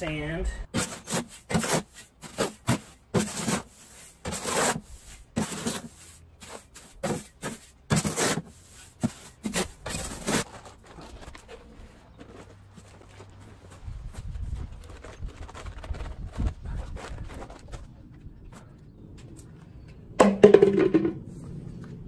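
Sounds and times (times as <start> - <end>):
shovel scraping in metal wheelbarrow: 0.7 - 11.6.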